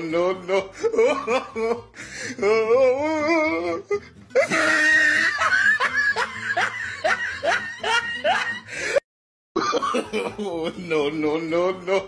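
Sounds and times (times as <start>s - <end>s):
wheezy laughter: 0.5s - 2.2s, 3.9s - 9.0s
person wailing: 2.4s - 8.7s.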